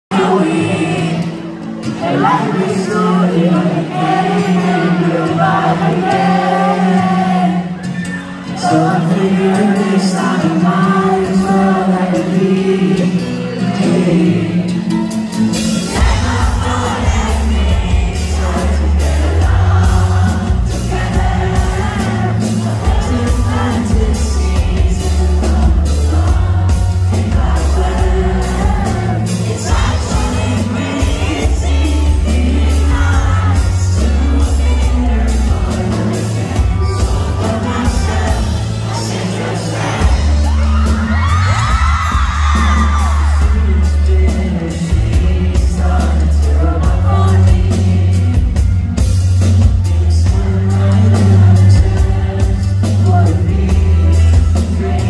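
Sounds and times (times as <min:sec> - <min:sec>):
person singing: 0:00.1 - 0:55.0
crowd whooping and screaming: 0:00.2 - 0:10.5, 0:15.5 - 0:44.4.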